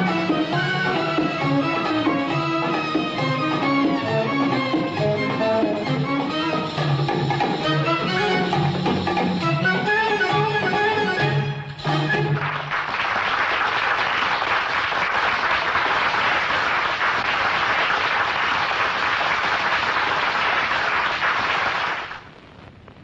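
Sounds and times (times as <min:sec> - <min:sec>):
audience applause: 0:12.0 - 0:22.3.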